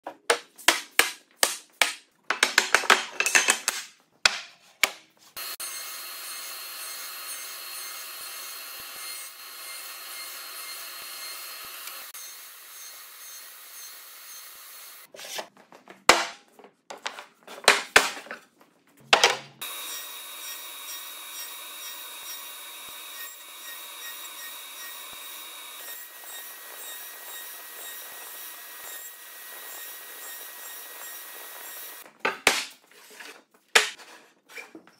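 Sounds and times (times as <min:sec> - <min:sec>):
wooden parts knocking together: 0:00.2 - 0:05.0, 0:19.0 - 0:19.6
power saw cutting wood: 0:05.4 - 0:15.1, 0:19.6 - 0:32.0.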